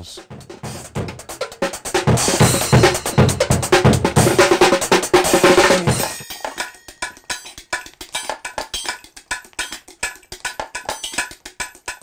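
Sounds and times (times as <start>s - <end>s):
loud drumming music: 0.0s - 12.0s
light taps and clinks on tin cans: 6.5s - 12.0s.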